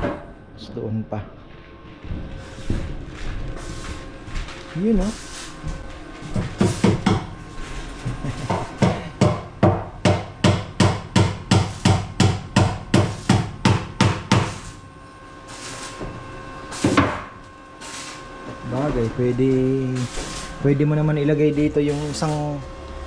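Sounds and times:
hammer nailing into wood: 0:08.5 - 0:14.6.

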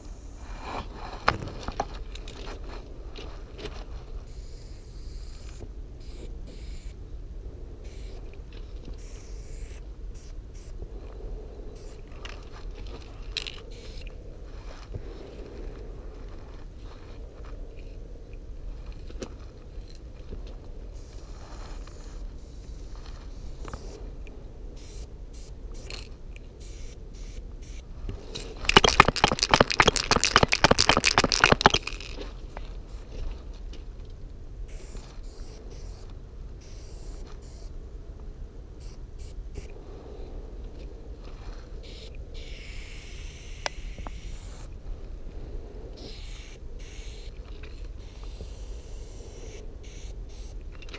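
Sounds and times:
quiet spray hiss: 0:03.9 - 0:15.2, 0:15.8 - 0:50.9
spray can ball rattling: 0:28.6 - 0:32.2.

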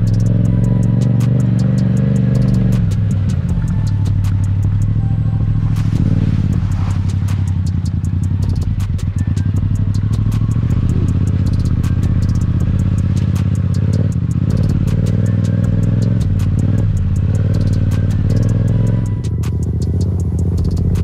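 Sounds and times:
sharp clicks and rattles: 0:00.0 - 0:05.1, 0:05.7 - 0:21.0
motorcycle engine running: 0:00.0 - 0:21.0.

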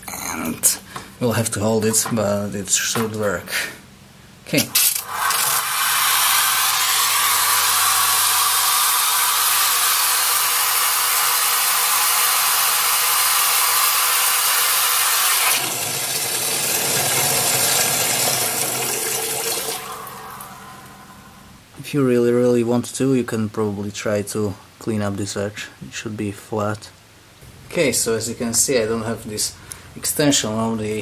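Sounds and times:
high-pressure water jet hissing: 0:05.0 - 0:18.0.

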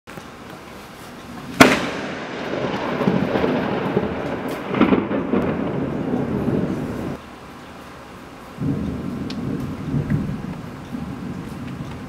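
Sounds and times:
rolling thunder rumble: 0:01.5 - 0:07.2, 0:08.6 - 0:12.0
lightning crack: 0:01.6 - 0:07.2.

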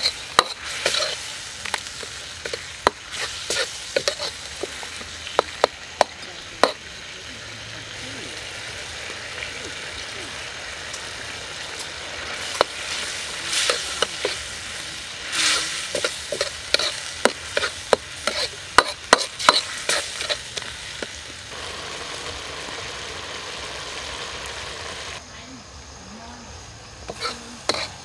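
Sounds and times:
metal ladle scraping a wok: 0:00.0 - 0:05.7, 0:11.8 - 0:21.2, 0:27.1 - 0:28.0
sauce sizzling and bubbling: 0:00.0 - 0:25.2.

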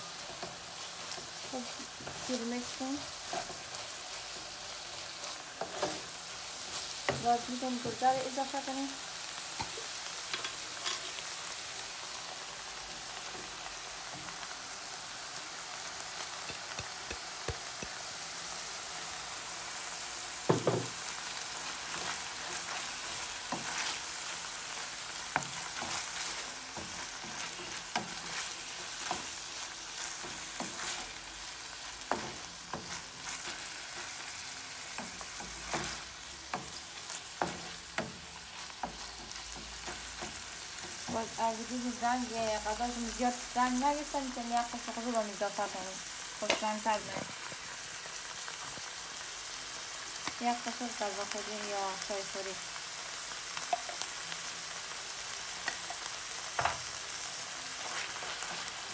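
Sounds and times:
meat sizzling in a frying pan: 0:00.0 - 0:58.9
wooden spoon scraping a pan: 0:00.1 - 0:08.0, 0:21.7 - 0:31.2.

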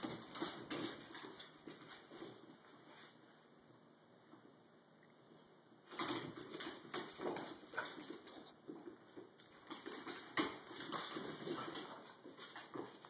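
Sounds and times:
dog claws clicking on floor: 0:00.0 - 0:02.4, 0:05.9 - 0:13.0
dogs scuffling in play: 0:00.0 - 0:03.4, 0:05.9 - 0:13.0.

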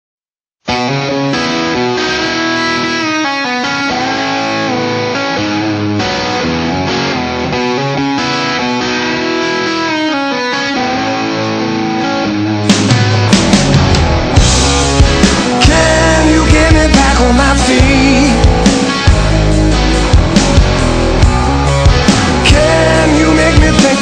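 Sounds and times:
electric guitar chord riff: 0:00.6 - 0:24.0
drums crashing: 0:12.6 - 0:24.0.

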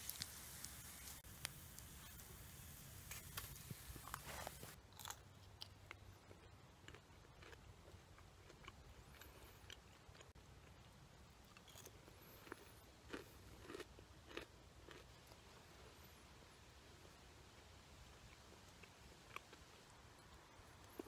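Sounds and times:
person chewing food crunches: 0:03.1 - 0:16.0, 0:18.2 - 0:21.0.

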